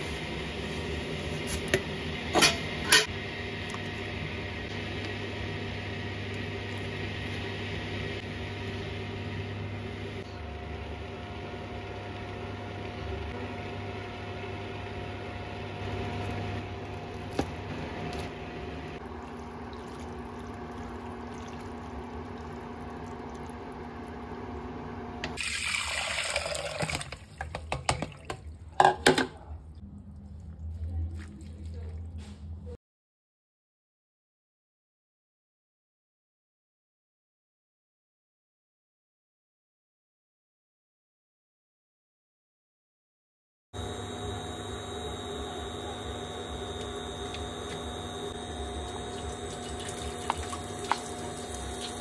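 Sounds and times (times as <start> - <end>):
water boiling in a pot: 0.0 - 28.8, 43.8 - 52.0
water splashing into a colander: 25.4 - 28.6, 48.7 - 52.0.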